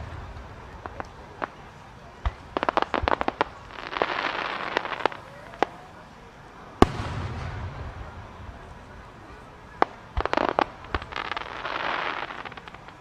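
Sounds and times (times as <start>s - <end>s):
loud firework bang: 0.0s - 1.5s, 6.8s - 9.0s
firework crackling hiss: 0.0s - 13.0s
firework shells bursting: 9.8s - 13.0s.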